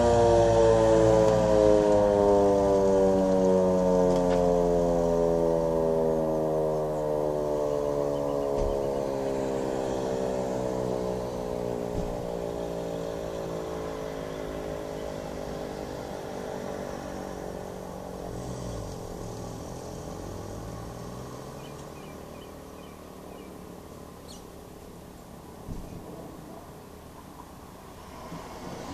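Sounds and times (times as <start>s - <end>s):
siren winding down: 0.0s - 24.5s.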